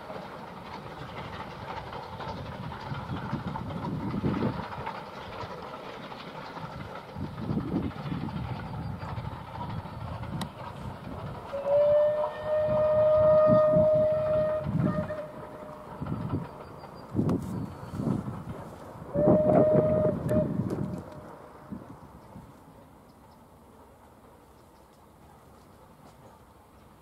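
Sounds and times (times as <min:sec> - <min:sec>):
steam locomotive exhaust beats: 0:00.0 - 0:27.0
steam whistle blast: 0:11.5 - 0:15.7, 0:19.1 - 0:20.7.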